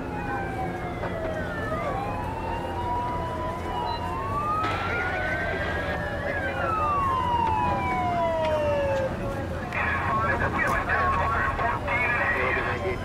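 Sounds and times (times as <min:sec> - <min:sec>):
fire truck sirens wailing: 0:00.0 - 0:13.0
steady low rumble: 0:00.4 - 0:13.0.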